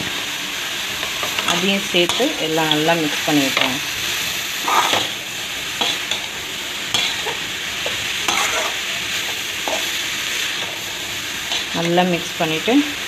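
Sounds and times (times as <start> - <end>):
vegetables sizzling in a pan: 0.0 - 13.0
metal spatula scraping a pan: 4.6 - 11.8.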